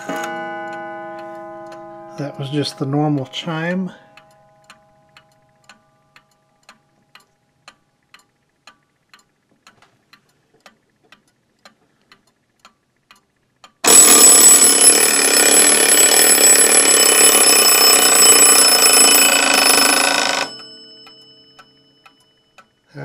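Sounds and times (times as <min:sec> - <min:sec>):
clock ticking: 0:00.0 - 0:23.0
alarm bell ringing: 0:13.8 - 0:22.8.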